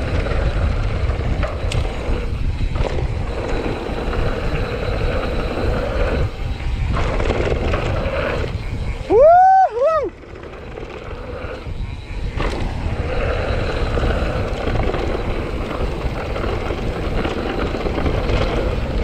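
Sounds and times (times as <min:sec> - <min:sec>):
bike tyres rumbling on gravel: 0:00.0 - 0:19.0
wind buffeting microphone: 0:00.0 - 0:19.0
person whooping: 0:09.1 - 0:10.2.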